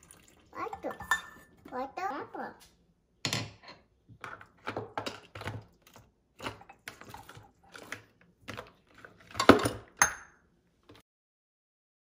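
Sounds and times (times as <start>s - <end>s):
steel measuring cups clinking: 0.0s - 1.6s
metal bowl clank: 0.7s - 1.5s.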